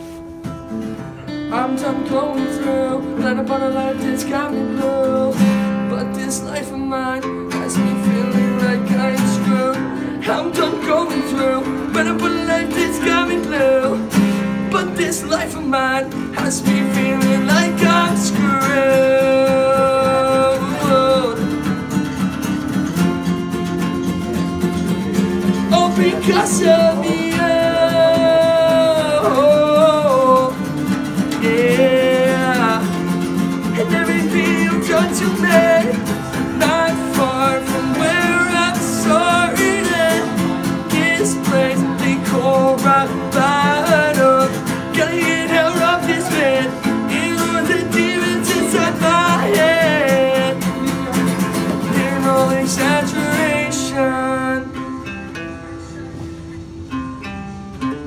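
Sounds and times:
acoustic guitars strumming: 0.0 - 58.0
man singing: 1.3 - 21.9, 25.4 - 54.9.

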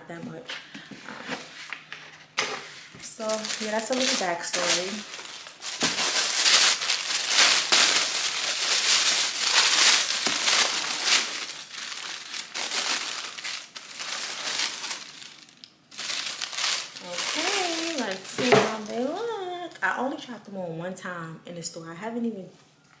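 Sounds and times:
packing paper rustling and crackling: 1.3 - 19.5.

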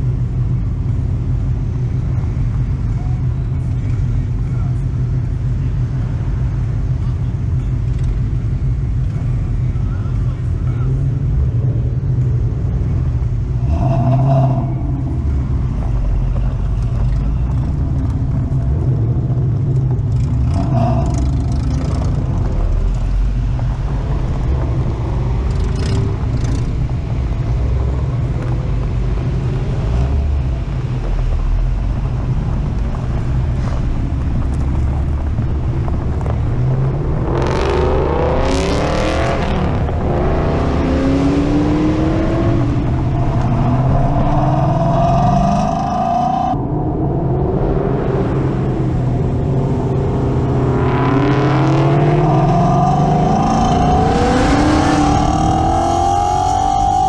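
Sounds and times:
car engines rumbling: 0.0 - 57.0
car engine revving hard: 13.6 - 16.2, 20.2 - 30.6, 35.8 - 57.0.

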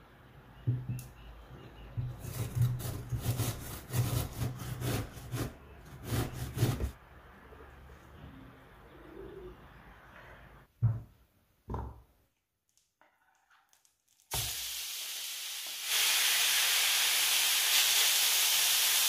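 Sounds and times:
grating vegetable on metal grater: 2.1 - 7.0.

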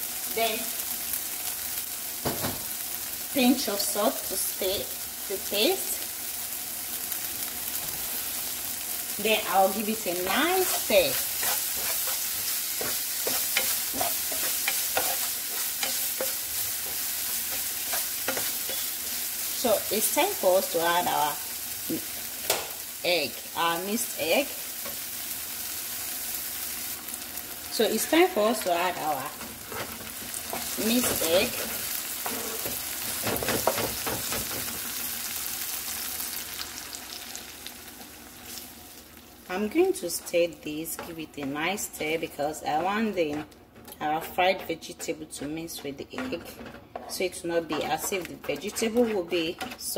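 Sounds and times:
onions and tomatoes sizzling: 0.0 - 49.9
spoon scraping and tapping pan: 10.2 - 19.1, 42.7 - 49.9.

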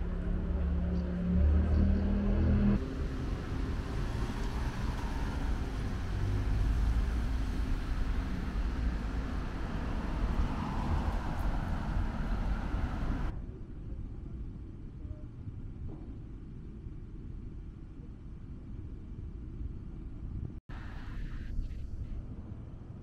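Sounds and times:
road traffic rumble: 0.0 - 13.3.

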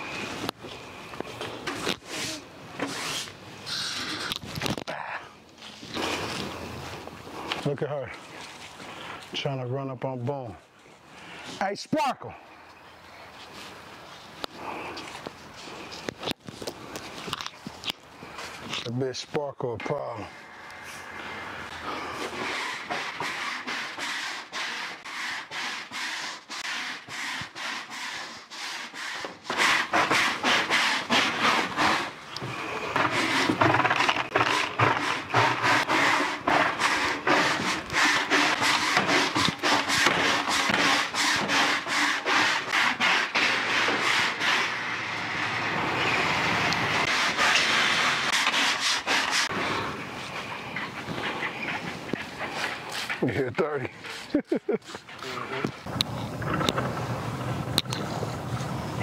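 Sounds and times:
push broom scrubbing wet floor: 21.8 - 45.3, 46.8 - 49.6.

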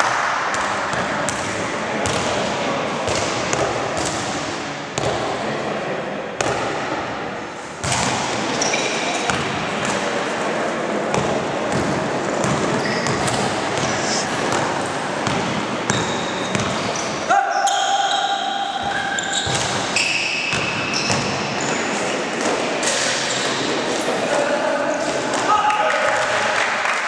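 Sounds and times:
echoing gym noise: 0.0 - 27.0
basketball bouncing on hard court: 0.5 - 2.3, 11.1 - 16.9, 18.9 - 21.4
sneaker squeaks: 7.8 - 9.4, 12.4 - 22.1, 22.8 - 24.2.

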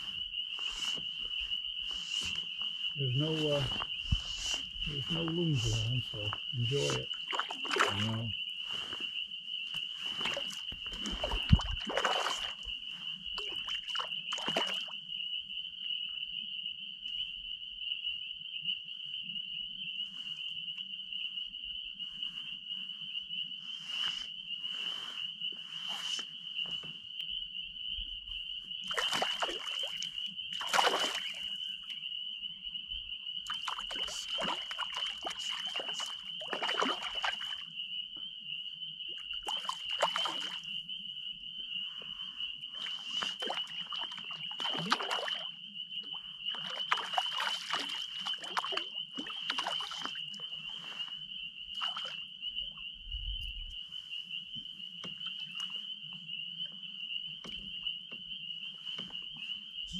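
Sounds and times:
high-pitched frog chorus: 0.0 - 59.9
fish splashing at the surface: 6.8 - 8.2, 10.2 - 12.6, 13.4 - 14.9, 28.9 - 31.5, 33.5 - 37.6, 39.4 - 40.6, 43.2 - 45.4, 46.6 - 50.2.

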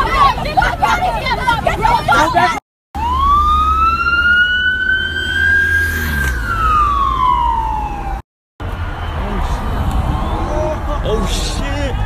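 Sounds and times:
traffic rumble: 0.0 - 12.0
emergency siren wailing: 3.0 - 8.3.

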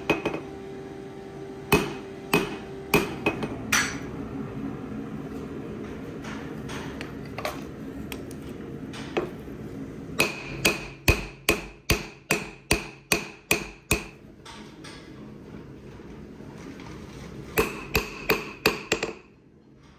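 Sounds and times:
hammer ringing on anvil: 1.7 - 4.1, 10.2 - 14.1.

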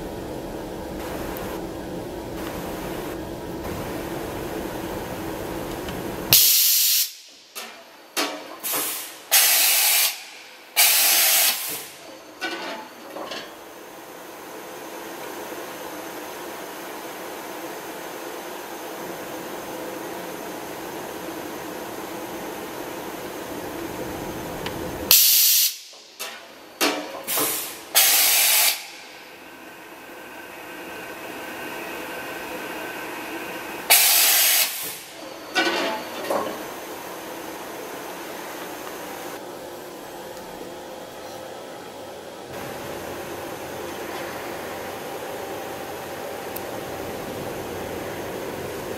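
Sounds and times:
machine hum: 0.0 - 6.4, 28.8 - 48.9
loud compressed-air hisses: 6.3 - 7.4, 8.6 - 12.0, 25.1 - 25.9, 27.3 - 29.3, 33.8 - 35.2.

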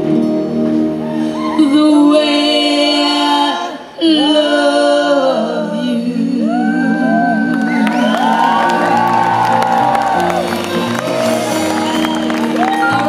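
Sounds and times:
woman and backing singers singing: 1.8 - 8.4.

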